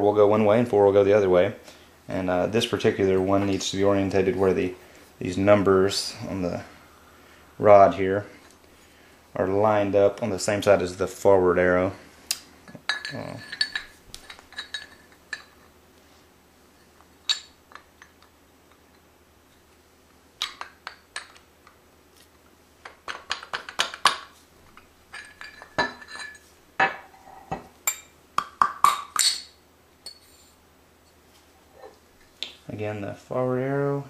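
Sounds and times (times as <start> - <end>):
metal engine parts clinking: 12.8 - 15.7, 17.2 - 18.3, 25.1 - 27.1.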